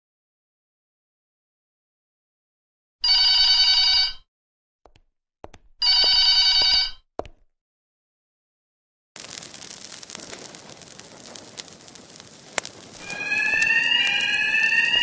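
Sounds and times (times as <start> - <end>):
telephone ringing: 3.0 - 4.3, 5.8 - 7.0.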